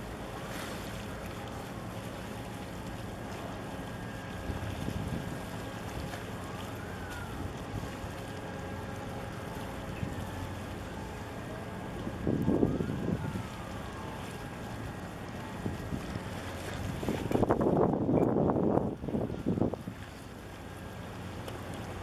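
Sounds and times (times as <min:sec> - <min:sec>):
steady low rumble: 0:00.0 - 0:22.0
wind buffeting microphone: 0:04.4 - 0:06.1, 0:11.9 - 0:20.8.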